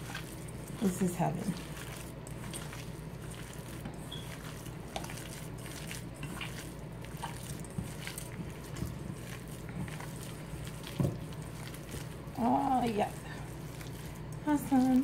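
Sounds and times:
hands squishing meat mixture: 0:00.0 - 0:15.0.

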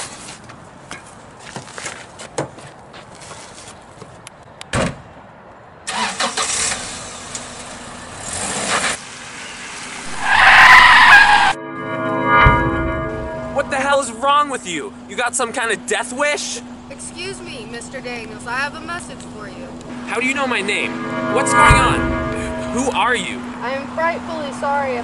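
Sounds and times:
car squealing stop: 0:08.2 - 0:11.6.

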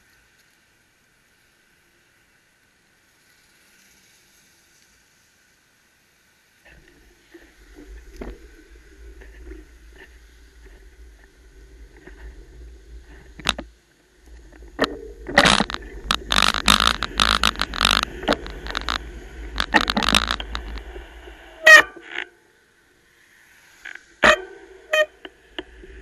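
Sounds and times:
low rumble on microphone: 0:06.6 - 0:22.0
scraping noise bursts: 0:06.7 - 0:22.3, 0:23.8 - 0:26.0.

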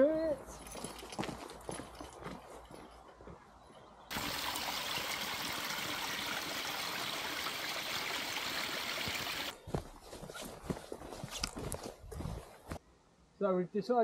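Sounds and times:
stream trickling over rock: 0:04.1 - 0:09.5.

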